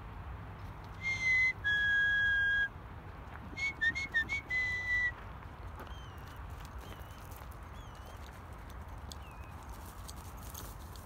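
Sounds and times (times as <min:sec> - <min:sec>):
person whistling for dog: 0:01.0 - 0:02.7, 0:03.6 - 0:05.1.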